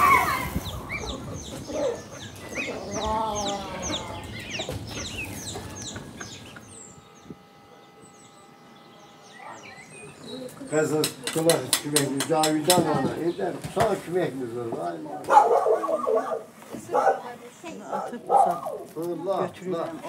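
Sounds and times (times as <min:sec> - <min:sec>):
chickens clucking: 0:00.0 - 0:07.9.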